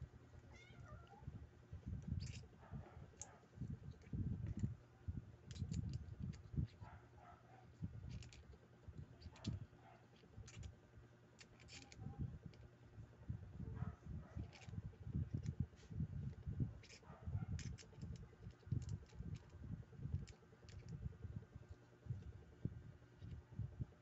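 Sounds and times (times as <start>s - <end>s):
small parts clicking together: 2.0s - 2.5s, 3.1s - 4.8s, 5.4s - 6.9s, 7.6s - 10.8s, 11.4s - 12.7s, 14.4s - 15.6s, 16.3s - 21.0s, 23.2s - 23.4s.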